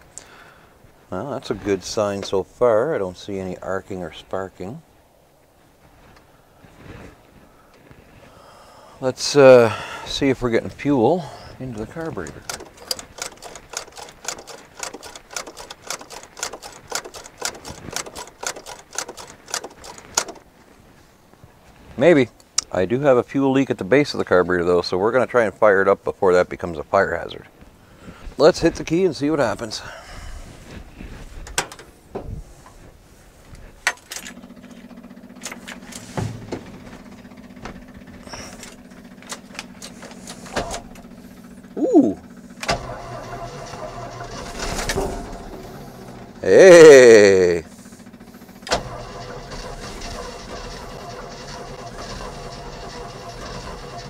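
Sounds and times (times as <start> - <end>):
low electrical hum: 0.0 - 54.0
electric fuel pump ticking: 11.2 - 20.5, 47.7 - 54.0
ignition keys jingling and clicking: 11.4 - 20.5, 31.4 - 32.0, 33.8 - 36.1, 36.7 - 41.2.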